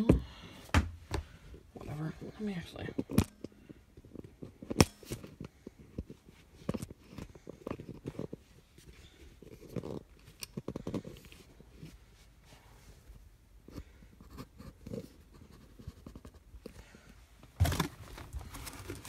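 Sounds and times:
rustling through cardboard box: 0:17.5 - 0:19.0.

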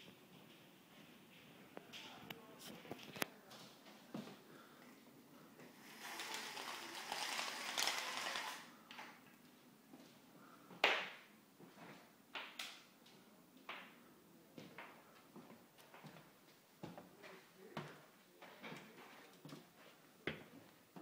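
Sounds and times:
window blinds rattling: 0:05.7 - 0:08.7.

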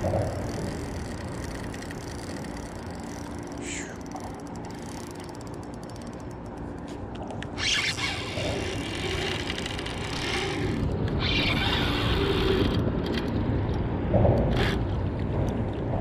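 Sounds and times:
fishing reel drag clicking and buzzing: 0:00.0 - 0:13.4
low rumble: 0:09.9 - 0:16.0.

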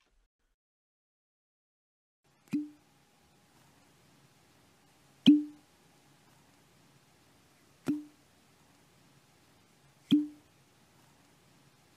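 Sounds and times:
cork popping from bottle: 0:02.5 - 0:02.8, 0:05.3 - 0:05.6, 0:07.9 - 0:08.1, 0:10.1 - 0:10.4.

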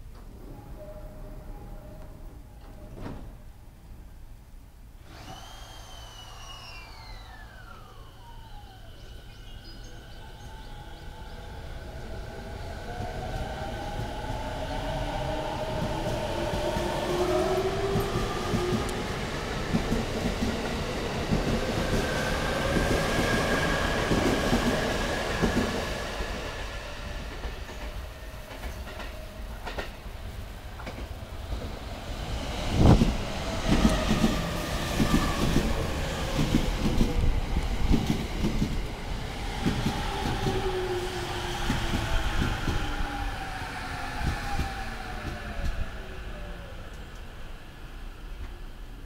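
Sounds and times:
electric train motor whine: 0:05.1 - 0:11.1.

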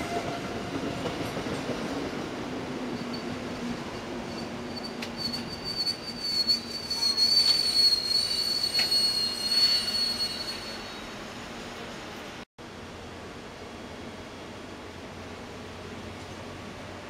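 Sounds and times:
high-pitched wheel squeal: 0:04.3 - 0:11.2.

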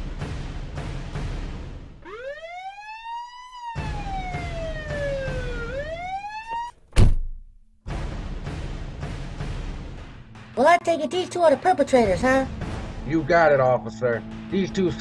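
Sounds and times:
police siren wailing: 0:02.0 - 0:06.8
loud thud: 0:07.0 - 0:10.2.

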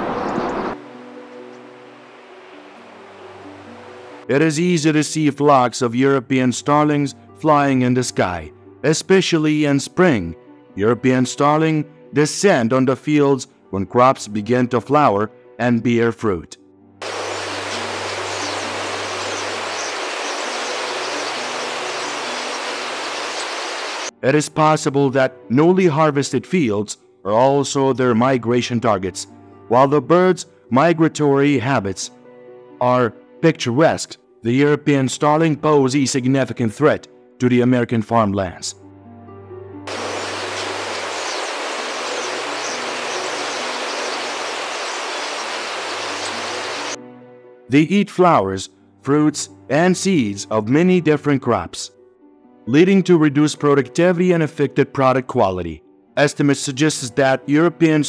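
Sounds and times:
faint high chirps: 0:17.0 - 0:24.1, 0:39.9 - 0:47.0
flock of birds in flight: 0:17.0 - 0:24.1, 0:39.9 - 0:47.0
rushing of thousands of wings: 0:17.0 - 0:24.1, 0:39.9 - 0:47.0.

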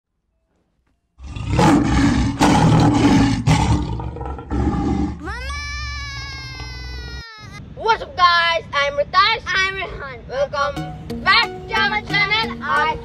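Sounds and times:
lion roaring: 0:01.2 - 0:05.2.

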